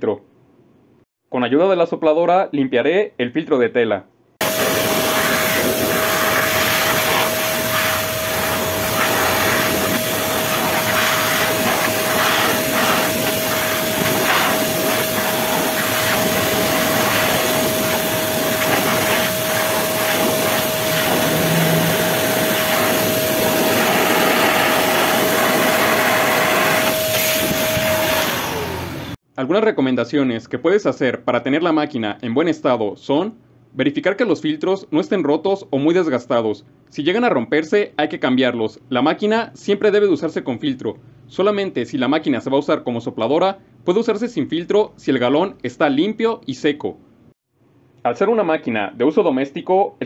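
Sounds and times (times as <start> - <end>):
shop vacuum blowing air: 4.4 - 29.2.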